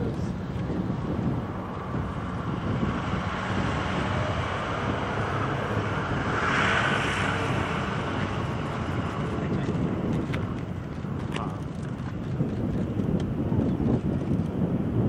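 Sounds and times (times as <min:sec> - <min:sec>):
vehicle engine running: 0:00.0 - 0:15.0.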